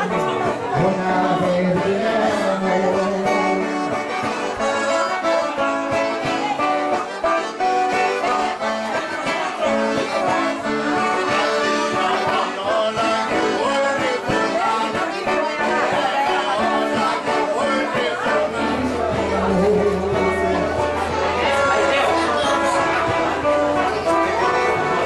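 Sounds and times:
men singing: 0.0s - 3.8s, 8.4s - 23.2s
piano accordion playing: 0.0s - 25.0s
strummed acoustic guitars: 0.0s - 25.0s.

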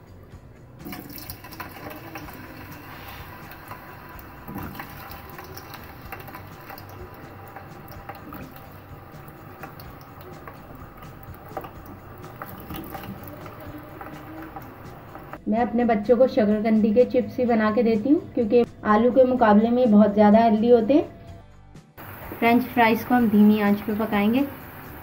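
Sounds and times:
food deep-frying in oil: 0.8s - 15.4s, 22.0s - 25.0s.

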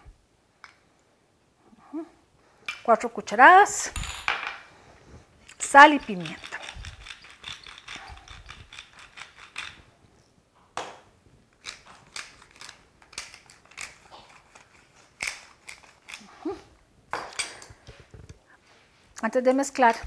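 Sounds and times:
pepper grinder ratcheting: 5.5s - 9.8s, 11.6s - 16.3s.

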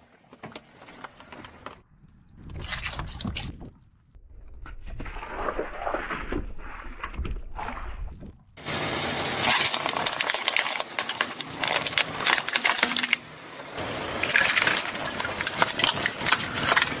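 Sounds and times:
tyre crushing brittle objects: 9.3s - 17.0s.

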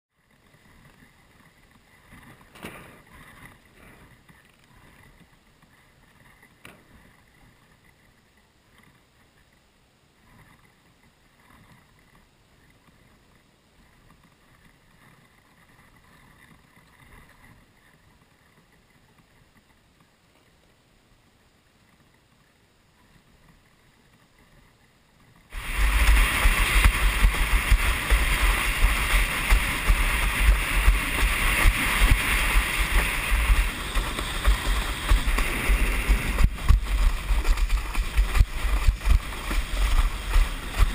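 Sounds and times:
faint wind: 0.1s - 40.9s
sail rustling: 25.2s - 40.9s.

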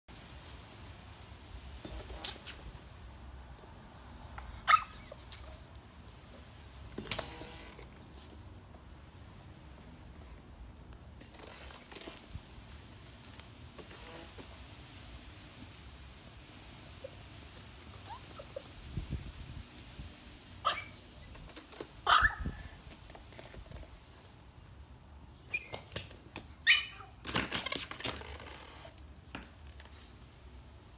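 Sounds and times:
dog barking high-pitched: 4.6s - 5.1s, 20.6s - 21.0s, 22.0s - 22.6s, 26.6s - 27.2s
small dog yipping: 4.6s - 5.5s, 17.8s - 18.8s, 20.6s - 22.9s, 25.4s - 27.2s.

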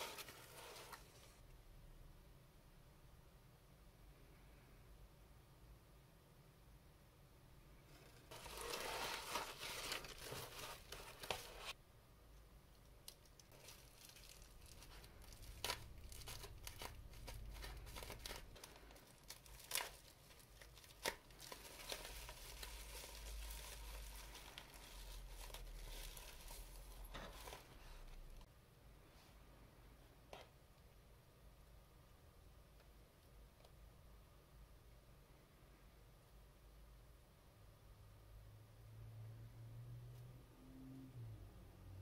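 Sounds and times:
bubble wrap crinkling and tearing: 0.0s - 1.4s, 8.0s - 11.8s, 13.0s - 28.4s.

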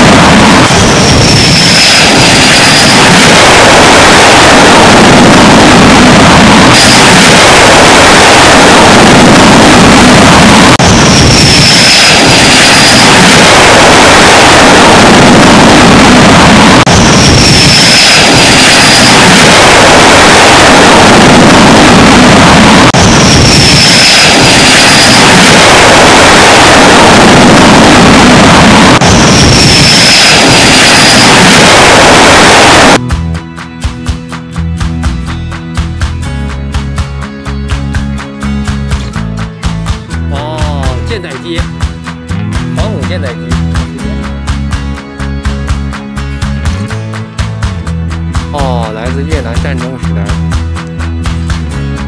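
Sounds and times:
jet engine roar: 0.0s - 33.5s
high falling whine: 0.0s - 52.0s.

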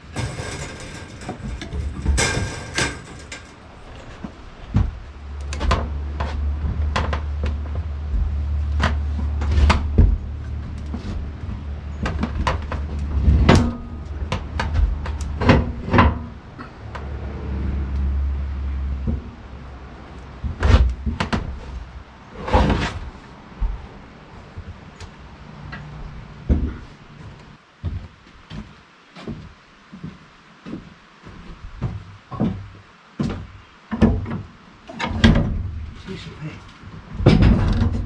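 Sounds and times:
wooden knocks and clunks: 0.0s - 17.1s, 18.9s - 25.0s, 25.7s - 36.1s, 36.7s - 38.0s
low hum: 0.0s - 27.6s.

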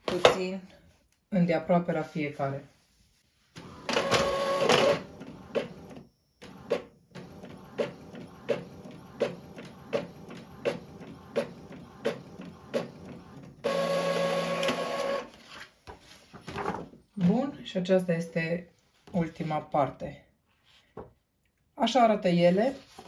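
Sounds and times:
printer motor whir: 3.6s - 15.3s.

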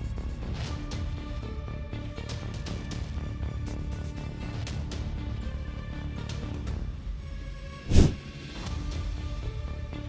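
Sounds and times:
background music: 0.0s - 10.0s.

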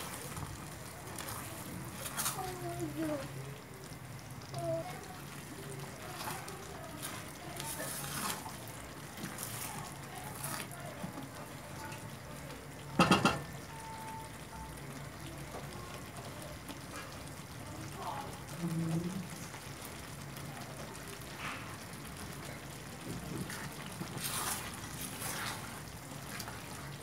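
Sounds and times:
utensils stirring in a pan: 0.0s - 27.0s
utensil knocking on pan: 13.0s - 13.5s.

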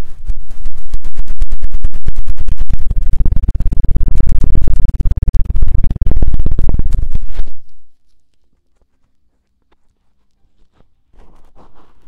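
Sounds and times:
scratching and knocking on microphone: 0.0s - 7.7s.

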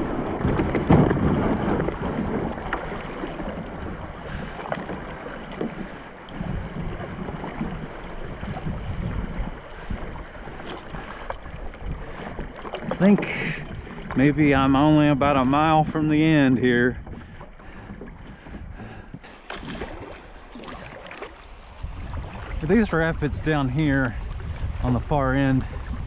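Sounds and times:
water lapping around kayak: 0.0s - 26.0s
wind buffeting microphone: 0.0s - 26.0s.

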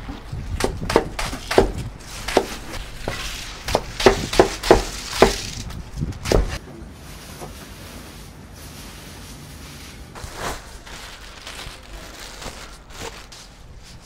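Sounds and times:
knife chopping cabbage on board: 0.6s - 2.7s, 3.7s - 5.5s.

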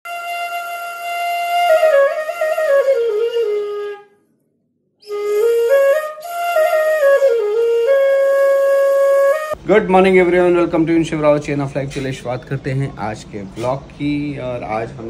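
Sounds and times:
solo flute melody: 0.1s - 4.3s, 5.0s - 9.6s.

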